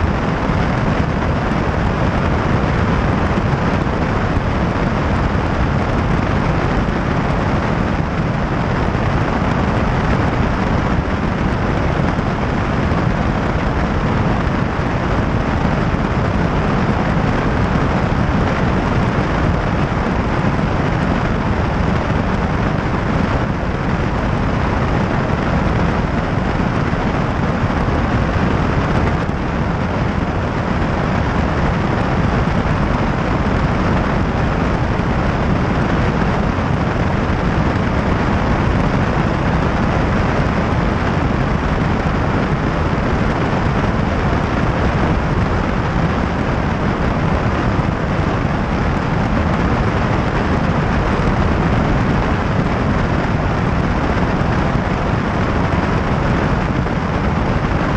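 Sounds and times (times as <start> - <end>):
light airplane engine in flight: 0.0 - 57.9.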